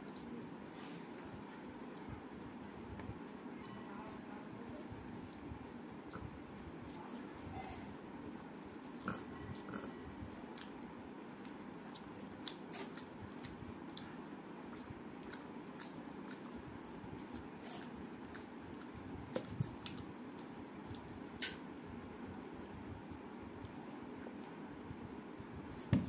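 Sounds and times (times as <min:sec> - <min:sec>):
person chewing: 0:08.3 - 0:10.8, 0:11.4 - 0:21.6.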